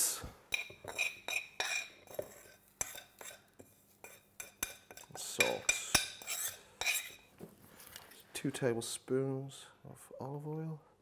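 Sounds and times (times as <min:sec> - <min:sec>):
metal spoon scraping ceramic bowl: 0:00.5 - 0:07.3.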